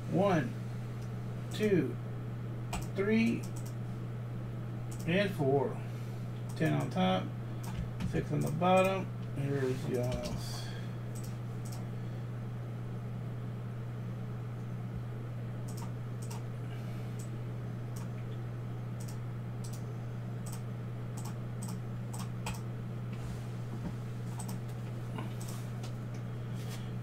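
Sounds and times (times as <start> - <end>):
steady low hum: 0.0 - 27.0
keyboard and mouse clicks: 15.7 - 16.4, 21.2 - 22.6.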